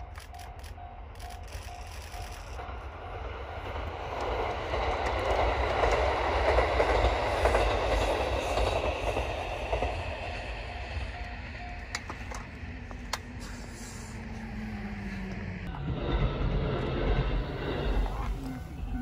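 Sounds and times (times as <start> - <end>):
level crossing alarm beeping: 0.0 - 4.4, 9.7 - 13.1
diesel train passing: 0.0 - 19.0.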